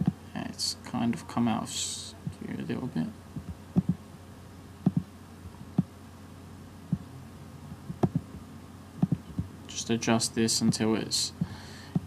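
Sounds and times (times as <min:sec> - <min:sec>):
low room hum: 0:00.0 - 0:12.0
computer mouse clicks: 0:04.8 - 0:05.1, 0:07.9 - 0:08.3.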